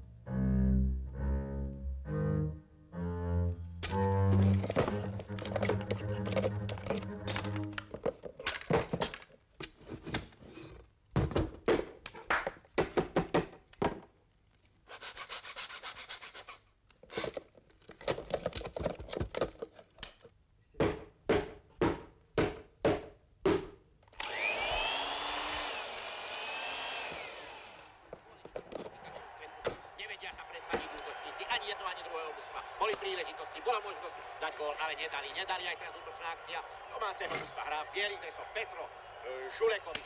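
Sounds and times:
wooden knocks and clatter: 0:04.4 - 0:10.3, 0:17.8 - 0:20.0.

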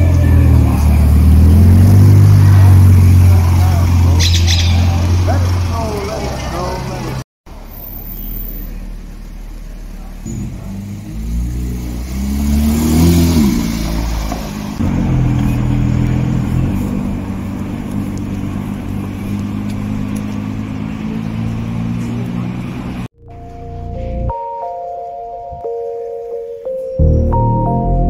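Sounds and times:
sports car engine revving past: 0:00.0 - 0:05.7, 0:10.3 - 0:23.1
car engine moving off in traffic: 0:00.0 - 0:24.5.

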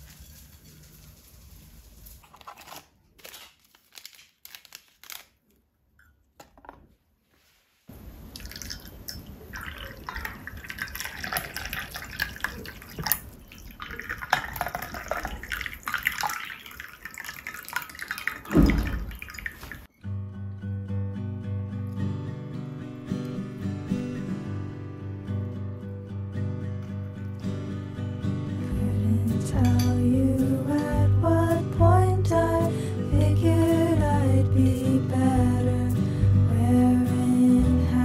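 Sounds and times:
water pouring into cups: 0:08.2 - 0:19.9.

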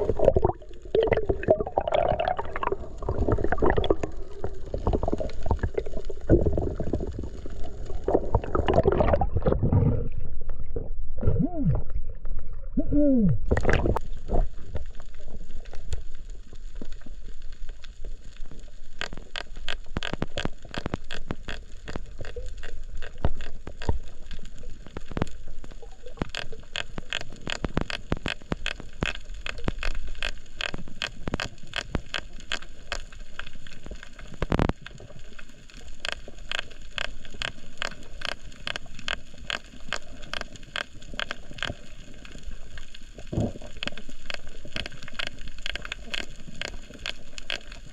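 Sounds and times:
snapping shrimp clicks underwater: 0:19.0 - 0:42.3, 0:43.3 - 0:47.9.

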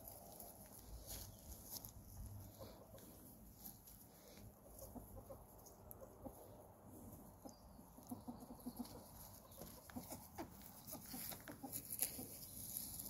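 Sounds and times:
leaves crackling: 0:00.0 - 0:04.4, 0:08.7 - 0:13.0.

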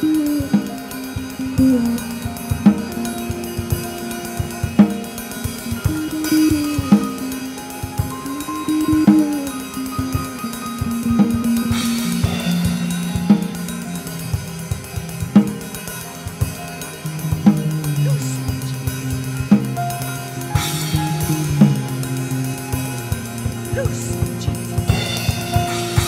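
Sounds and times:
cymbal swell: 0:00.0 - 0:26.0
slow live band music: 0:00.0 - 0:26.0
drum hits: 0:10.0 - 0:26.0.

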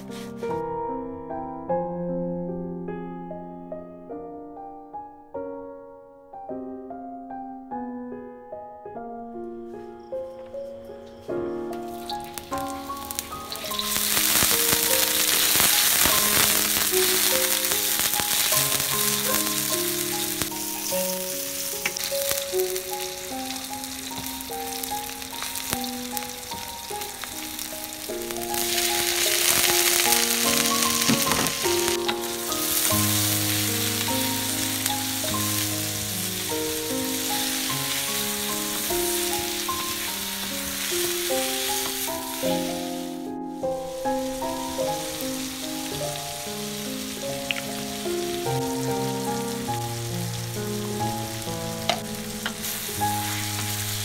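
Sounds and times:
wooden spatula stirring: 0:00.0 - 0:00.6
soft melodic background music: 0:00.0 - 0:54.0
onion frying in hot oil: 0:11.8 - 0:43.2, 0:44.0 - 0:54.0.

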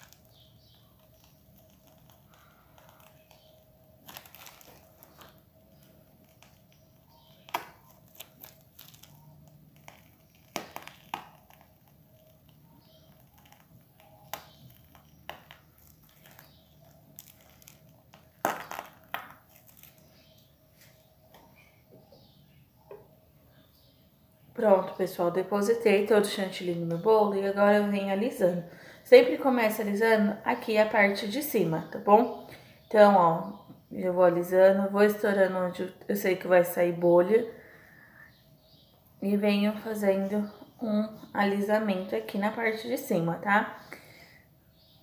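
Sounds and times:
plastic bag crinkling: 0:00.0 - 0:20.4.

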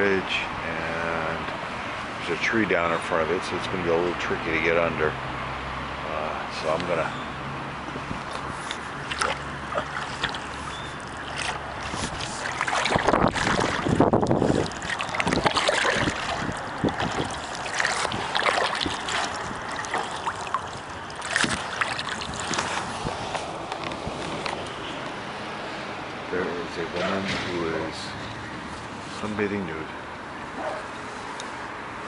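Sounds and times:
paddle splashing in water: 0:08.3 - 0:24.6.

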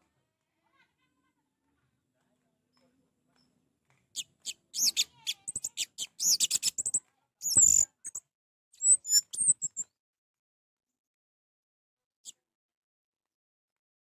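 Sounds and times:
thrush chirping and whistling: 0:04.2 - 0:08.2, 0:08.8 - 0:09.8.

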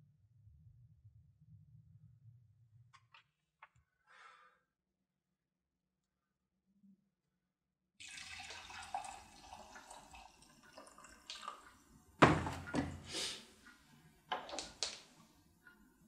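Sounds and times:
liquid poured into a mug: 0:08.0 - 0:11.7
knocks of things set down: 0:12.2 - 0:13.0
loud clunk: 0:12.2 - 0:13.0.

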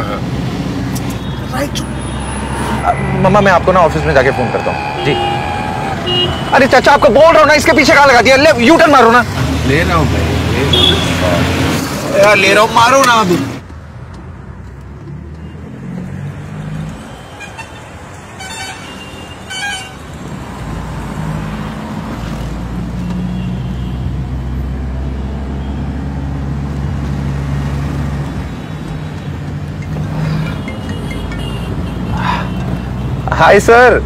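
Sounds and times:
car road noise: 0:00.0 - 0:34.0
car horn toots: 0:03.8 - 0:06.8, 0:10.7 - 0:11.2, 0:30.3 - 0:33.2.

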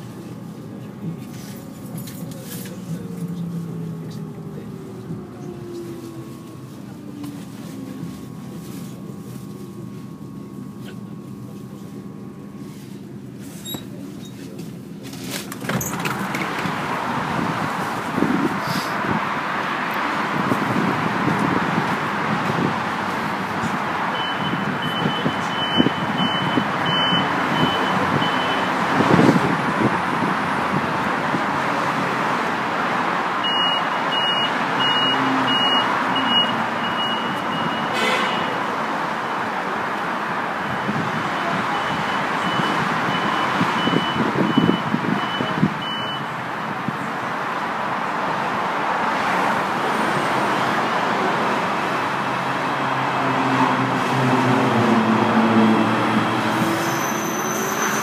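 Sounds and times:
train equipment running: 0:00.0 - 0:18.9.

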